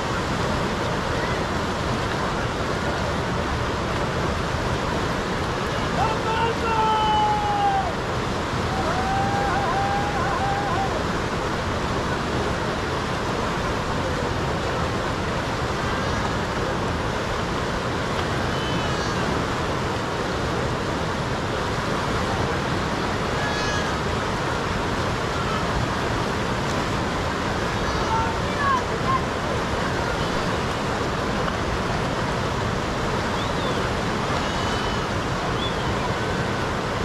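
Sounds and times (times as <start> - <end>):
fast-flowing river rushing: 0.0 - 37.0
faint voices calling: 5.6 - 11.5, 27.6 - 31.2, 33.2 - 37.0.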